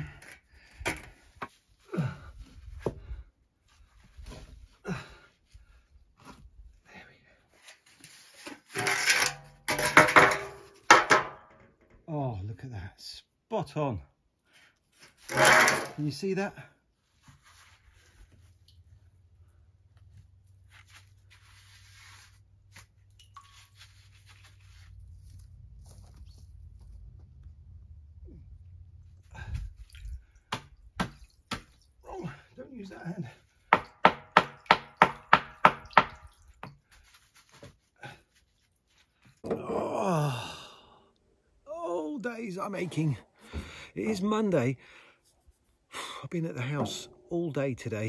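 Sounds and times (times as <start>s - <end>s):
person grunting with effort: 39.4s - 41.0s.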